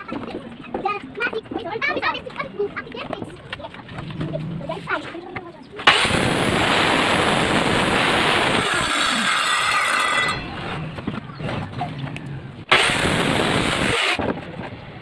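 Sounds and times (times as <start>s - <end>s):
circular saw cutting wood: 5.9s - 10.7s, 12.7s - 14.2s.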